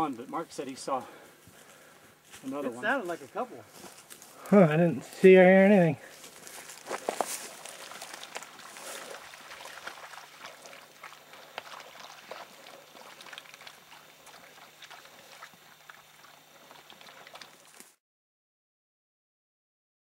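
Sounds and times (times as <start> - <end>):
dog swimming and splashing: 6.5 - 18.0.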